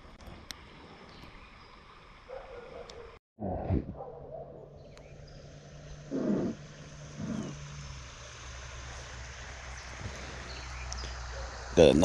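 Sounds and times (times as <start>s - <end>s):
slow creek flowing: 5.0s - 12.0s.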